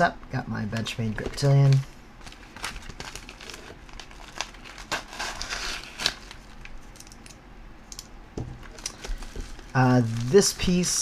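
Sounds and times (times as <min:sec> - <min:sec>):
padded envelope crinkling: 0:00.7 - 0:07.1, 0:08.6 - 0:11.0.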